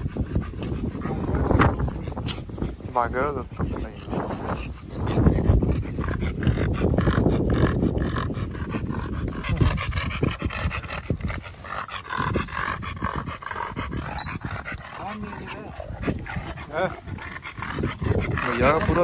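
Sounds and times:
dog panting: 0.0s - 19.0s.

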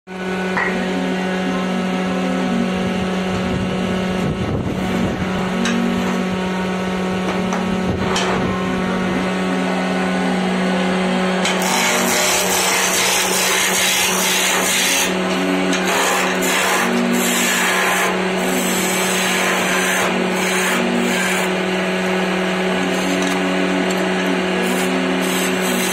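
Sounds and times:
lathe motor humming: 0.1s - 25.9s
gouge shaving spinning wood: 11.4s - 21.8s.

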